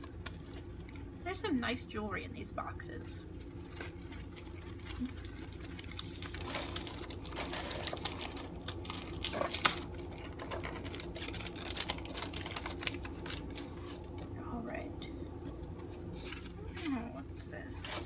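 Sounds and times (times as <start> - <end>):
packaging crinkling by hand: 0.0 - 1.2, 3.3 - 14.4.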